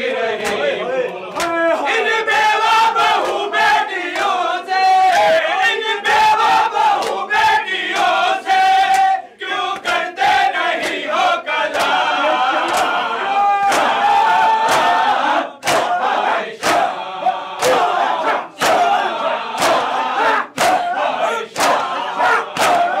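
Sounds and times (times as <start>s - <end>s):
crowd of men chanting: 0.0s - 23.0s
hands slapping bare chests: 6.9s - 8.2s, 11.7s - 12.0s, 15.6s - 16.9s, 17.6s - 19.0s, 19.6s - 23.0s.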